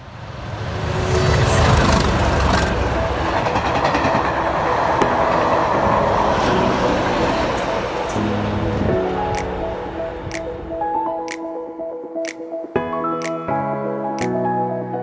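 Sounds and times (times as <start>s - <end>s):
train rumble: 0.0s - 10.5s.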